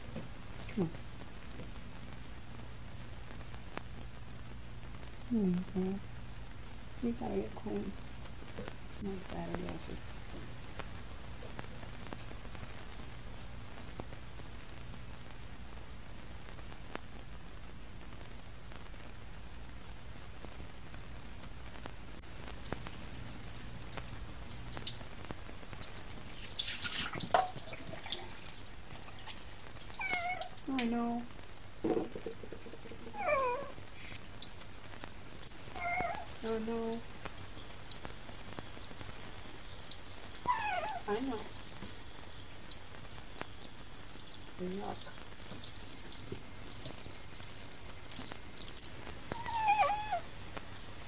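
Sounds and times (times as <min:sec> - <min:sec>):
water drips: 0:22.6 - 0:51.0
tap water running into sink: 0:25.7 - 0:29.7, 0:31.8 - 0:33.2
cat meowing: 0:30.0 - 0:30.6, 0:33.1 - 0:33.8, 0:35.7 - 0:36.4, 0:40.4 - 0:41.2, 0:49.3 - 0:50.3.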